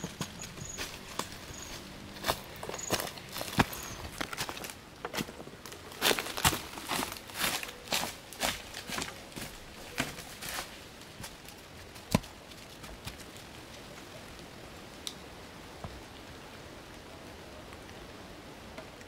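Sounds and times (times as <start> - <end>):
sharp knocks and crackles: 0.0 - 7.1, 12.0 - 13.3
light rain hissing: 11.5 - 19.0.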